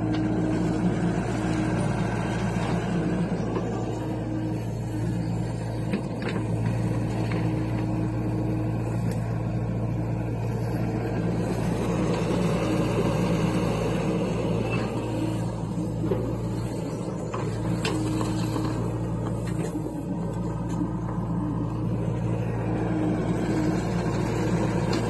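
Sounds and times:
excavator diesel engine running: 0.0s - 25.0s.

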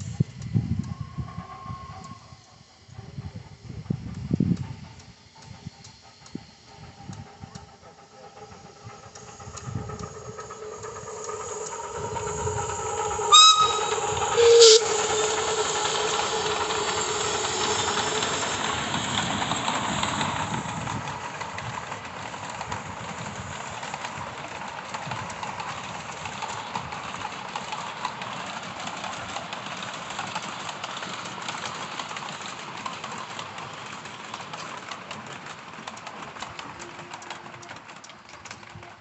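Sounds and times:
steam hissing: 0.0s - 37.9s
small wheels clacking over rails: 3.6s - 39.0s.

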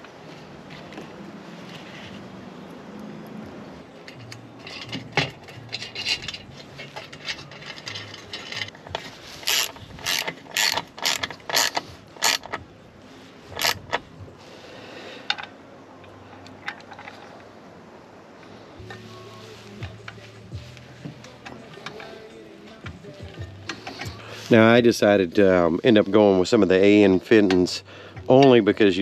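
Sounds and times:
hand ratchet clicking: 4.1s - 12.6s, 13.5s - 14.0s, 22.8s - 24.2s.

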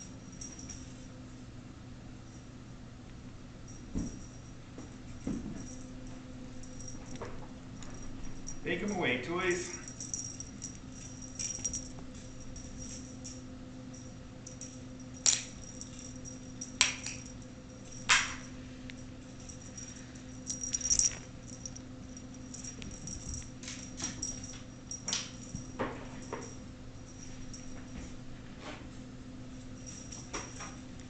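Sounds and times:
low hum: 0.0s - 8.7s, 9.6s - 31.0s.

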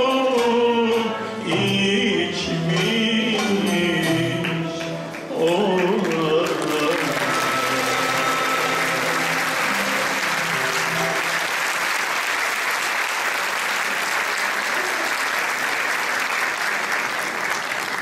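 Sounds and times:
audience applause: 5.1s - 18.0s.

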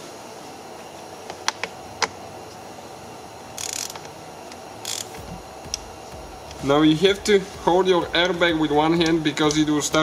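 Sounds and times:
ratchet clicks: 3.6s - 4.1s, 4.8s - 5.8s
ratchet rasping: 3.6s - 4.1s, 4.8s - 5.4s.

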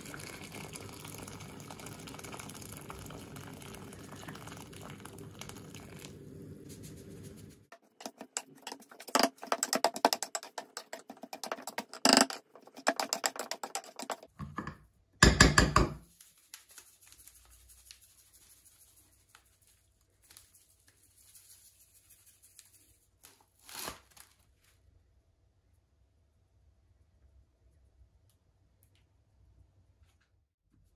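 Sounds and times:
masher scraping pan: 7.7s - 14.6s
potato masher clicking and knocking: 7.8s - 16.0s.

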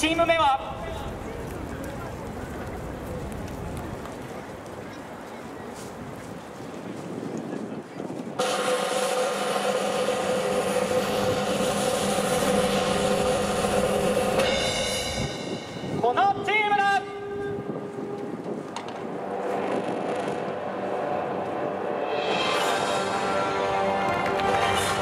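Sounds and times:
crowd noise: 0.0s - 25.0s.

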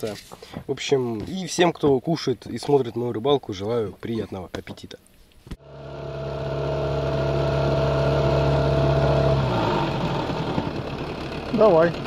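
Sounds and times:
boat motor running: 5.6s - 12.0s.

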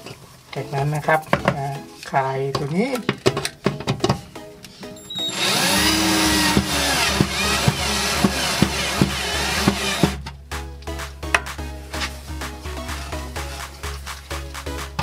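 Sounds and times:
background music with steady beat: 0.0s - 15.0s
cordless drill driving a screw: 5.1s - 10.2s.

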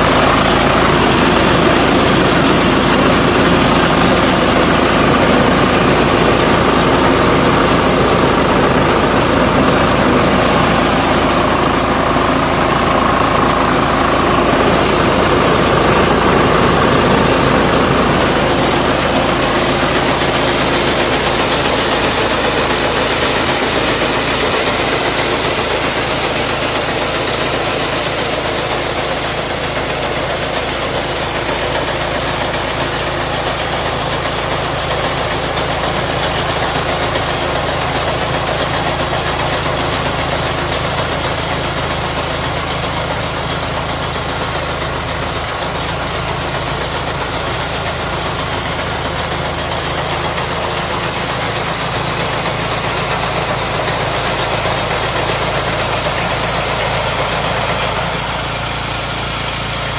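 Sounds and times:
diesel engine hum: 0.0s - 59.9s.

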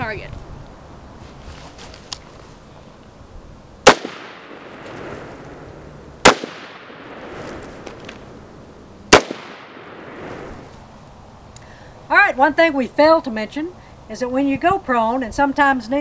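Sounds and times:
rifle shots with echo: 3.8s - 5.6s, 6.2s - 8.3s, 9.1s - 10.6s.

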